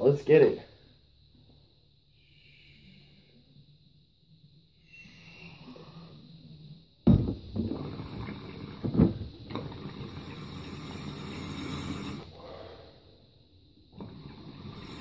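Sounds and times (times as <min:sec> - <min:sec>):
water bubbling in a water pipe: 0:07.2 - 0:12.3, 0:14.0 - 0:15.0.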